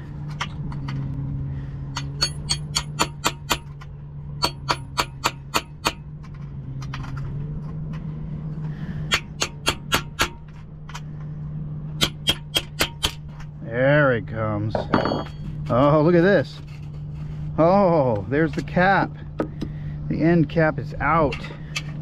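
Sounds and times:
low hum: 0:00.0 - 0:22.0
hammer tapping metal punch: 0:02.0 - 0:03.8, 0:04.4 - 0:06.1, 0:12.0 - 0:13.3.

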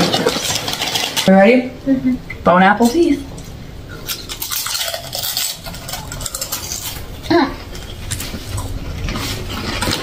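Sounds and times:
people crunching crisp chips: 0:00.0 - 0:01.4, 0:03.9 - 0:10.0.

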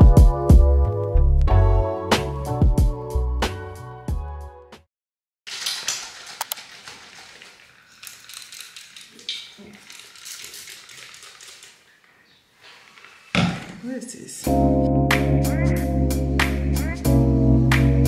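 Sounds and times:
background music: 0:00.0 - 0:04.8, 0:14.4 - 0:18.0
small objects clicking and clattering: 0:05.5 - 0:11.9.

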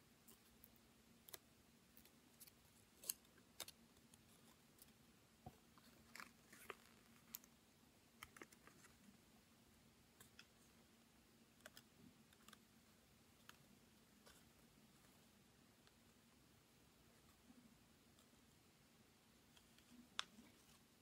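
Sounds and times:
faint steady hum: 0:00.0 - 0:21.0
paper crinkling and ticking: 0:05.8 - 0:07.6.

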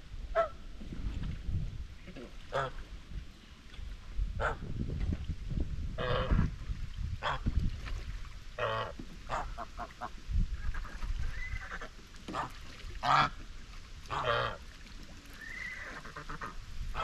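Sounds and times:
geese honking: 0:14.1 - 0:14.6, 0:15.4 - 0:17.0.

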